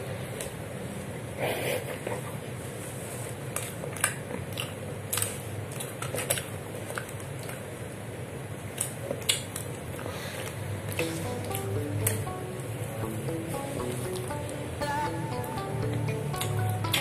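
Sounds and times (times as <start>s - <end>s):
steady low hum: 10.4s - 17.0s.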